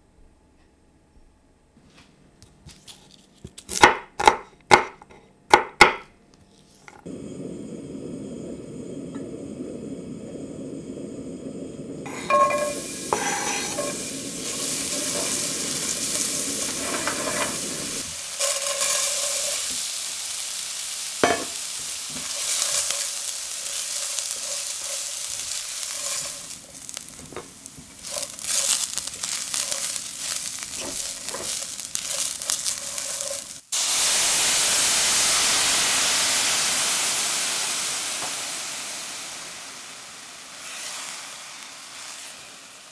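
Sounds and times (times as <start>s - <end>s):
onion sizzling in oil: 6.8s - 42.9s
wine hissing in hot pan: 7.0s - 42.9s
spatula scraping pan: 12.1s - 19.8s, 21.2s - 33.6s.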